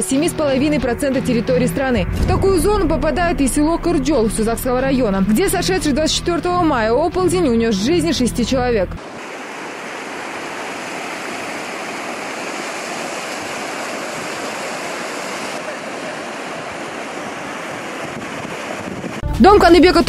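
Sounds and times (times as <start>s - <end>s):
flowing water rushing: 9.0s - 19.2s.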